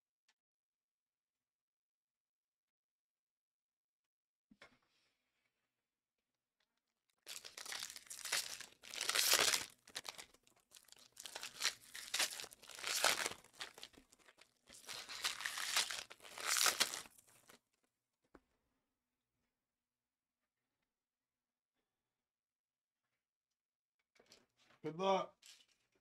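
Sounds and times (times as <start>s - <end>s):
plastic shrink-wrap crinkling: 7.3s - 17.6s.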